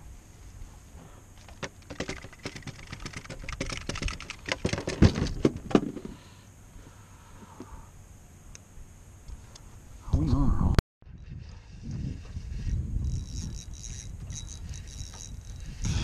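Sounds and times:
fishing tackle clicking and knocking: 0:01.4 - 0:05.2, 0:13.0 - 0:15.6.

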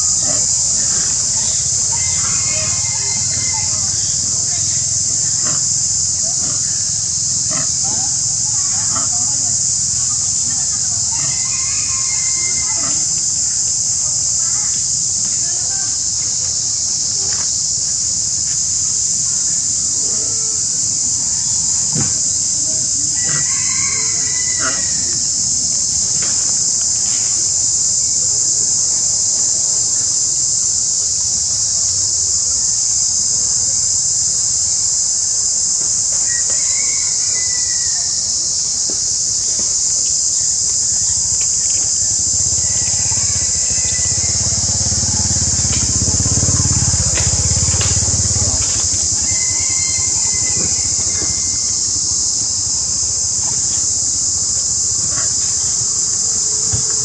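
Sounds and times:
short high calls: 0:00.0 - 0:05.8, 0:10.7 - 0:13.2, 0:23.2 - 0:25.2, 0:36.2 - 0:38.3, 0:41.0 - 0:52.0
insect chorus drone: 0:00.0 - 0:57.0.

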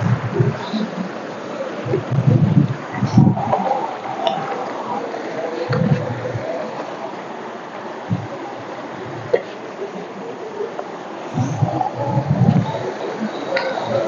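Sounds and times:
stream rushing over stones: 0:00.0 - 0:14.0
low thumps: 0:01.8 - 0:04.9, 0:05.6 - 0:06.8, 0:08.0 - 0:08.4, 0:11.3 - 0:12.9.

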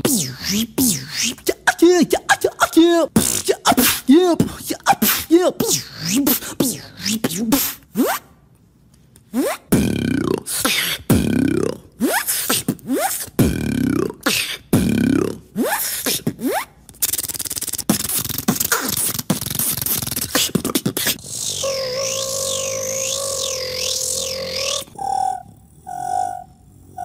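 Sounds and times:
rapid continuous mouth buzz: 0:00.0 - 0:07.8, 0:09.3 - 0:27.0
beatboxing vocal sounds: 0:00.0 - 0:08.3, 0:09.2 - 0:25.0.

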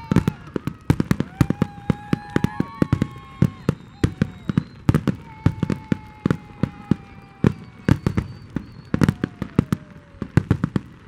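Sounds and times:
fireworks bangs and crackles: 0:00.0 - 0:11.0
descending whistle-like tone: 0:01.6 - 0:10.0.

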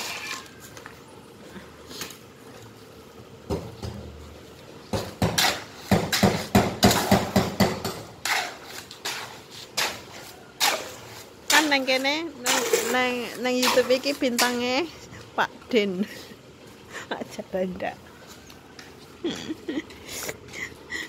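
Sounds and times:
shovel scraping concrete in wheelbarrow: 0:00.0 - 0:00.7, 0:05.0 - 0:14.8.

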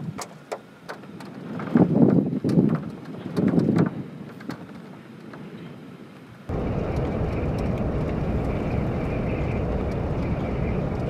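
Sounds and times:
roar of tornado wind: 0:06.5 - 0:11.0.

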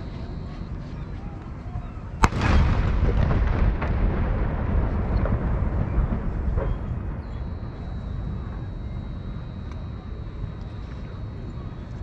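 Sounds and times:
cannon shot rumble and echo: 0:02.2 - 0:10.6.

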